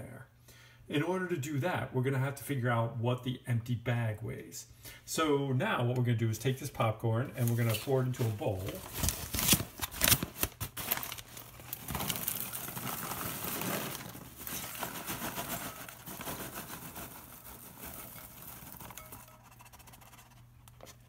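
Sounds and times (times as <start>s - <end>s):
paper bag crinkling: 7.4s - 19.4s
popcorn pattering into bowl: 7.4s - 20.5s.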